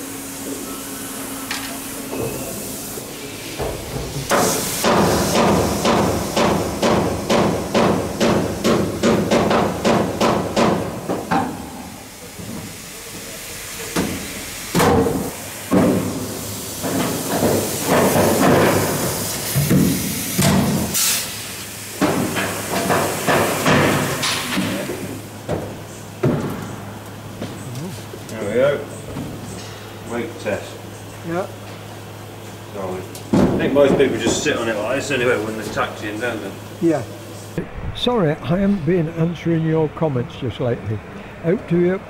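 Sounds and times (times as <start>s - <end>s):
air hiss: 0.0s - 25.3s
air tool hammering on metal: 1.4s - 12.8s, 13.8s - 25.0s.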